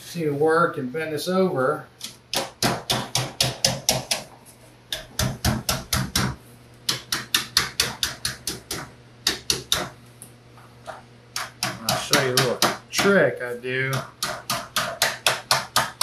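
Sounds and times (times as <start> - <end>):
hammer tapping sheet metal: 2.3 - 4.3, 4.9 - 10.0, 11.4 - 13.2, 13.8 - 16.0.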